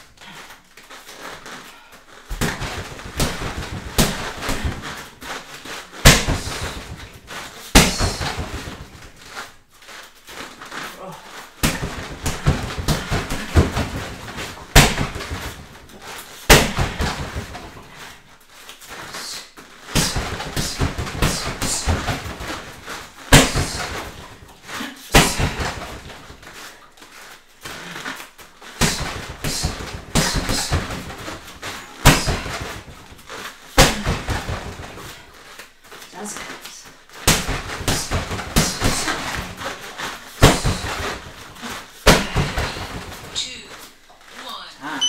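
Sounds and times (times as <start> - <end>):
footwork on foam mats: 0.0 - 45.0
punches and kicks thudding: 2.3 - 9.3, 11.6 - 18.0, 19.9 - 26.5, 28.7 - 35.3, 37.2 - 43.4.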